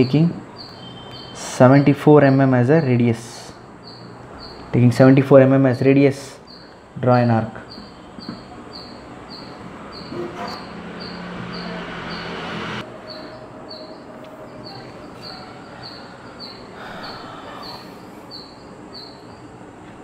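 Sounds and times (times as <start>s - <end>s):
faint high chirp: 0.0s - 1.4s, 7.6s - 12.4s, 13.0s - 19.5s
chalk scraping on chalkboard: 10.1s - 10.8s.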